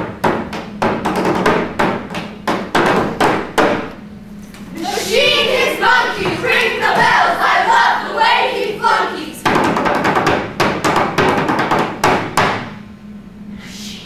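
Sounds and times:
loud voices: 0:04.5 - 0:09.7.

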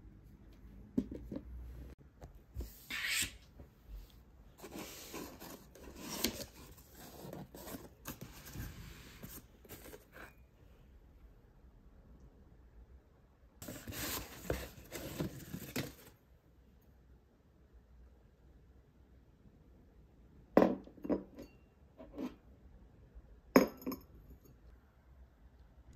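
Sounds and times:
cardboard rubbing and scraping: 0:13.6 - 0:16.1.

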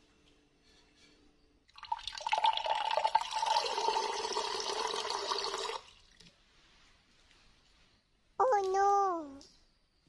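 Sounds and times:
water filling a glass: 0:01.7 - 0:06.3.

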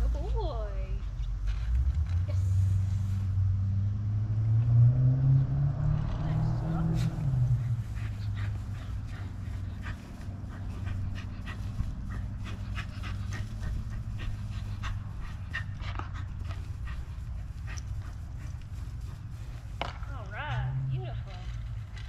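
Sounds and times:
steady low hum: 0:00.0 - 0:22.0
dog panting: 0:06.2 - 0:20.0.

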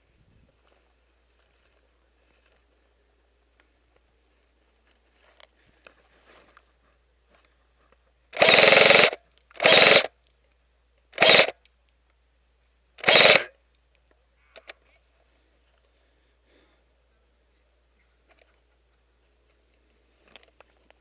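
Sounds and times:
electric airsoft gun firing bursts: 0:08.4 - 0:10.1, 0:11.2 - 0:11.5, 0:13.0 - 0:13.5.

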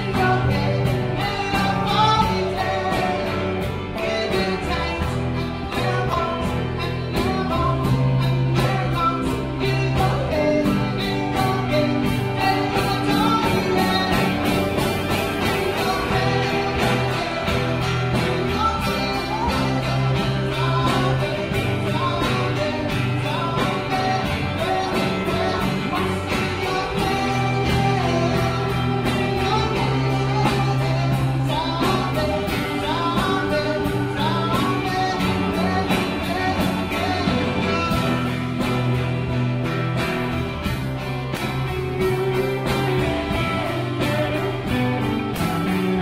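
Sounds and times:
guitar accompaniment: 0:00.0 - 0:46.0
person singing: 0:00.0 - 0:46.0
sustained bass notes: 0:00.0 - 0:46.0.

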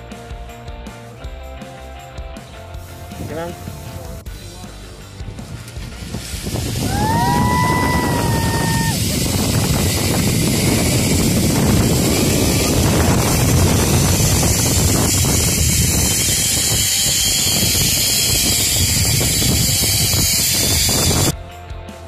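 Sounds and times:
wind buffeting microphone: 0:05.3 - 0:21.4.

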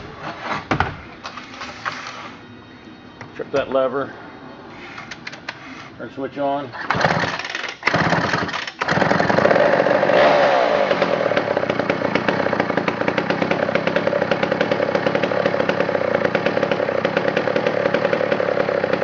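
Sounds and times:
chainsaw running: 0:06.9 - 0:19.0.

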